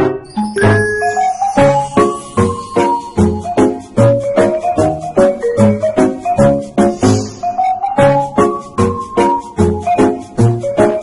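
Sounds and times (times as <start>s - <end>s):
keyboard melody with bouncy beat: 0.0s - 11.0s.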